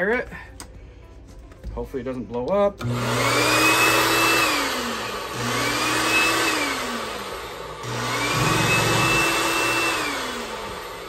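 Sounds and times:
carpet cleaner motor whine: 0:02.8 - 0:11.0
low motor hum: 0:07.8 - 0:11.0.

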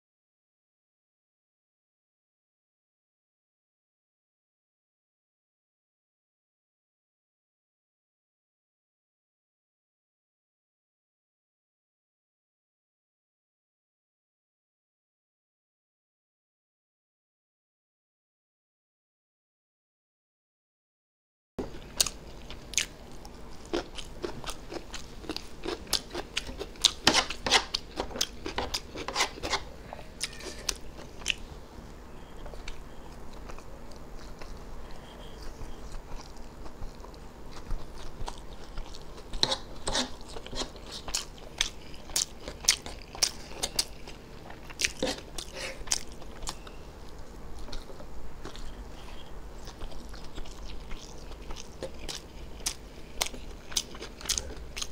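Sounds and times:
man chewing noodles: 0:21.6 - 0:54.9.

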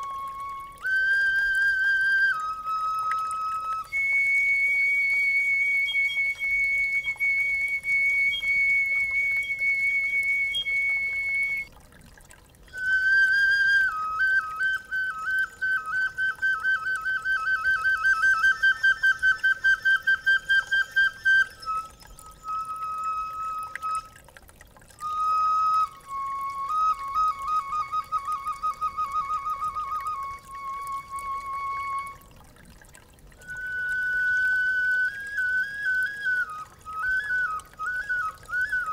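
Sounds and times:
breathy bone flute melody: 0:00.0 - 0:38.9.

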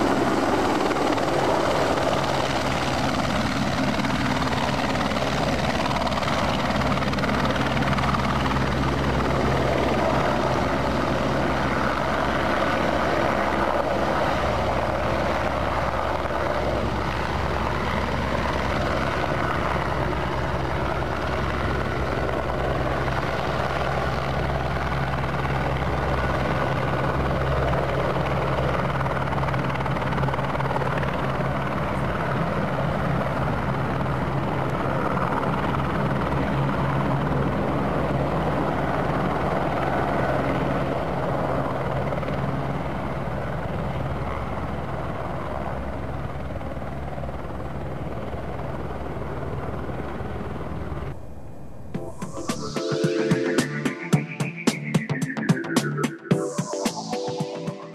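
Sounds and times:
helicopter rotor and turbine hum: 0:00.0 - 0:57.9.

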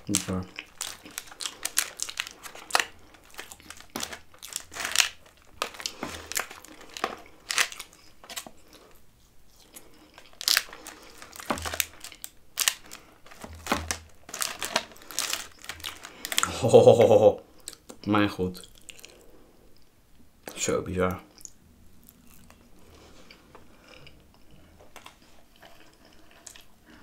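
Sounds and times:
close-miked chewing: 0:00.0 - 0:13.5, 0:18.6 - 0:19.9, 0:21.3 - 0:27.0.

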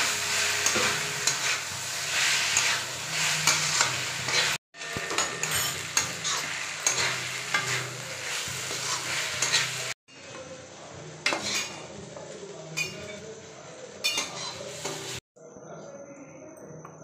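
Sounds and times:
metal spatula scraping a pan: 0:00.0 - 0:10.4, 0:11.3 - 0:11.9, 0:14.0 - 0:15.2
noodles sizzling: 0:00.0 - 0:15.2.

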